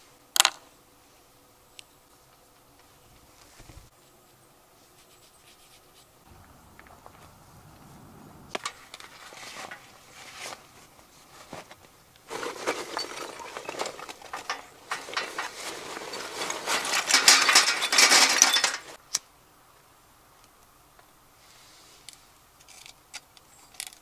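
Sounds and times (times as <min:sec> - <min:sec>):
charcoal clattering into metal bowl: 0:12.3 - 0:19.0.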